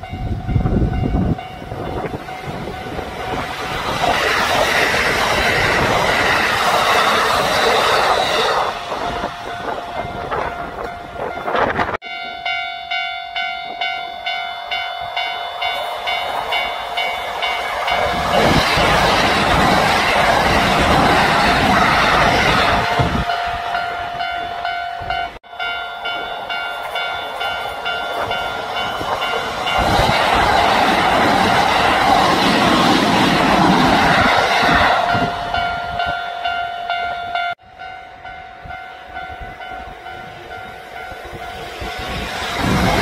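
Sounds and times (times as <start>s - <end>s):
electric train on rails: 0.0s - 43.0s
high-pitched tone: 6.8s - 30.5s.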